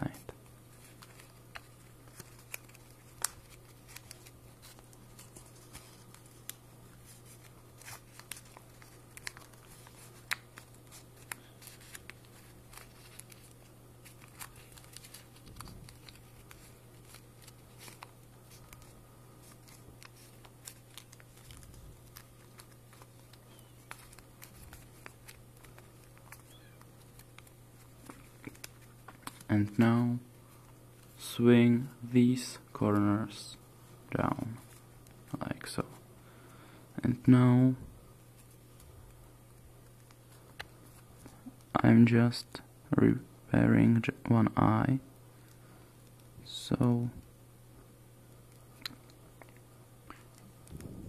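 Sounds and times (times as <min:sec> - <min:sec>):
paper being folded: 0:00.0 - 0:30.0
steady low hum: 0:00.0 - 0:51.0.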